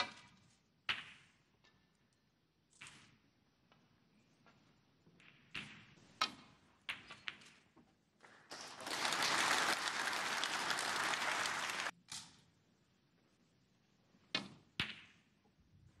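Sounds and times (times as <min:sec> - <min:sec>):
crowd applauding: 0:08.5 - 0:11.9.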